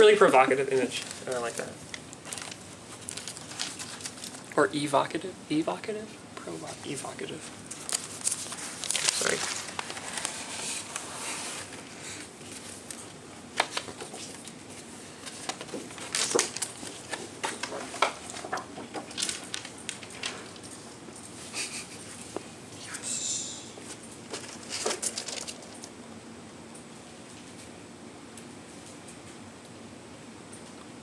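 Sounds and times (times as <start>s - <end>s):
paper rustling: 0.7s - 4.5s, 6.8s - 20.8s, 23.9s - 25.9s.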